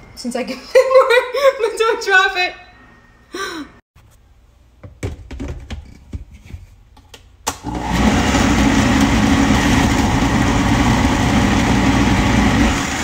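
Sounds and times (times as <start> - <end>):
blender pureeing soup: 7.6 - 13.0.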